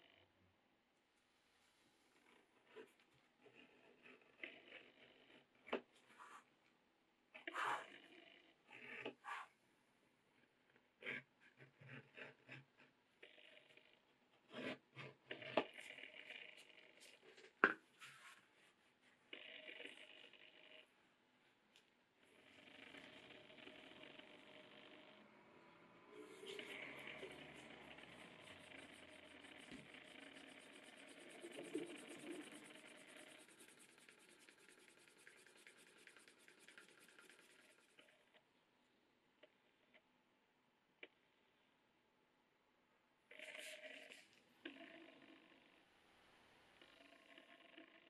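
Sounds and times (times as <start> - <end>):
wood rubbing on leather: 26.4 - 38.0.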